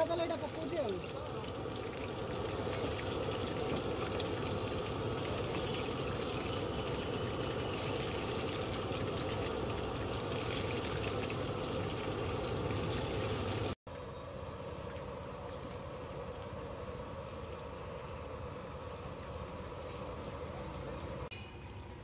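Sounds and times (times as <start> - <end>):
deep-frying sizzle and crackling: 0.0 - 13.8.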